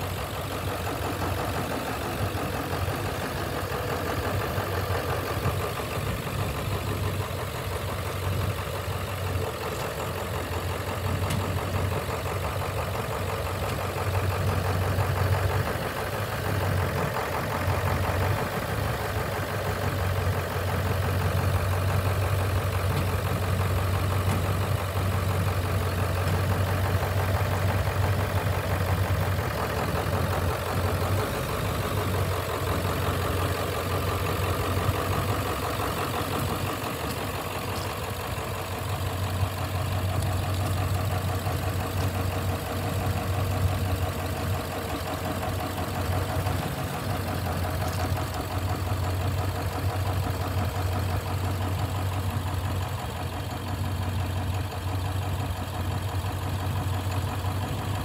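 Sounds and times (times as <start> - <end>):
truck engine idling: 0.0 - 58.0.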